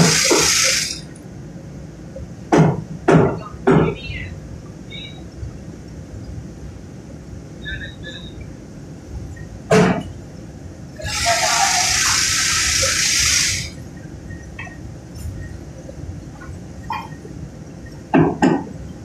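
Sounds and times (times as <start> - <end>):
loud even hiss: 0.0 - 1.1, 11.0 - 14.0
mill machinery noise: 0.0 - 1.5, 5.8 - 19.0.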